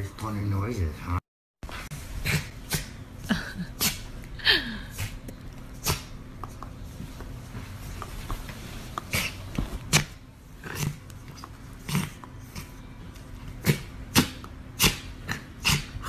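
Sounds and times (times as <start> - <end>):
puppy making sharp noises: 13.6 - 16.0.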